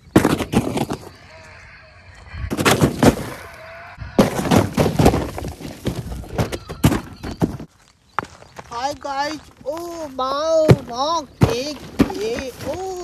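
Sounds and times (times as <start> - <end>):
footsteps crunching on gritty rock: 4.2 - 13.0.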